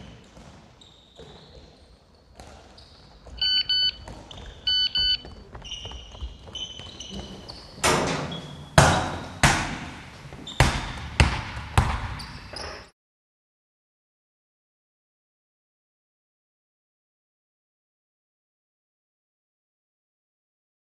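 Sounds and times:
electronic beeps: 3.4 - 4.0, 4.6 - 5.4
loud sharp thumps with ringing: 7.8 - 12.2.

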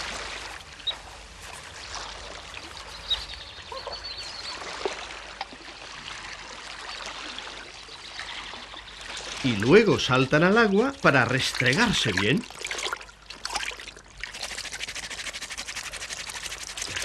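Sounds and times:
water trickling: 0.0 - 17.0.

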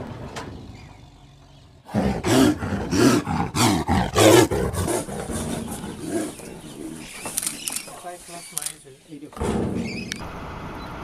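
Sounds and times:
large animal roaring: 0.5 - 7.1.

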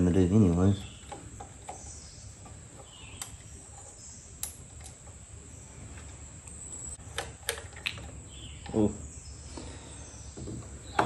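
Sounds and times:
screwdriver and metal parts clicking: 0.8 - 5.2.

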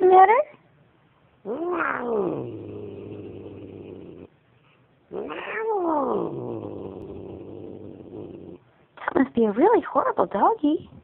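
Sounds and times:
cat growling: 1.4 - 4.3, 5.1 - 8.7
cat yowling: 1.5 - 2.5, 5.1 - 6.6.

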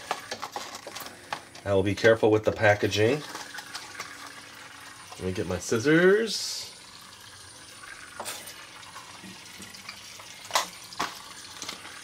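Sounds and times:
toy boat propeller churning water: 2.5 - 12.0.

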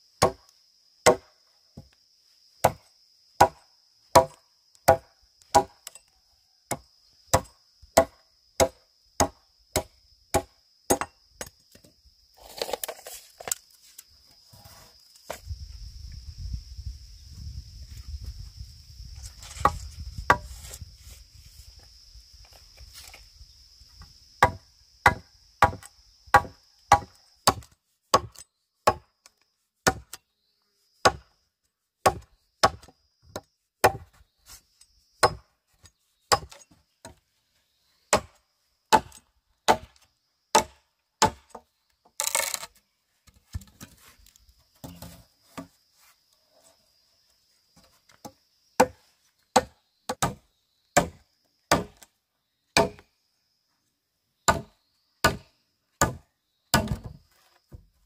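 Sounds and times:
blade chopping bamboo: 0.2 - 0.4, 3.4 - 5.9, 24.4 - 29.1, 32.0 - 34.1, 35.2 - 35.4, 36.3 - 37.2, 40.5 - 41.6, 48.8 - 50.4, 51.0 - 52.0, 54.5 - 55.4, 56.0 - 57.2.

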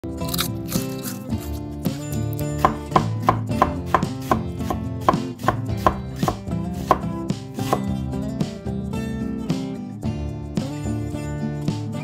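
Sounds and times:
background music with held notes: 0.0 - 12.0
sharp knocks: 2.6 - 7.1.

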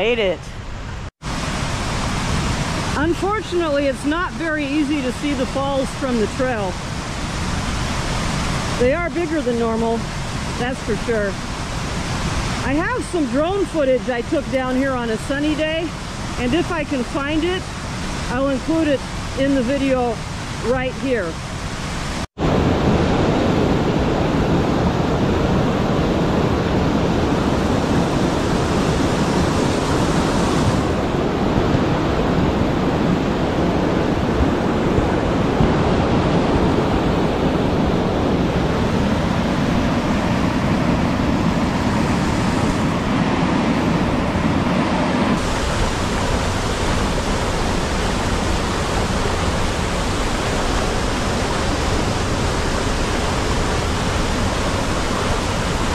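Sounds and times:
waterfall rushing: 1.2 - 55.9.

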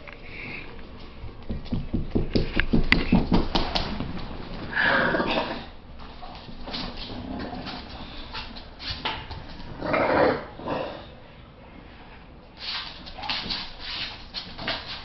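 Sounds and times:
scratchy rubbing and scuffling: 12.6 - 15.0.

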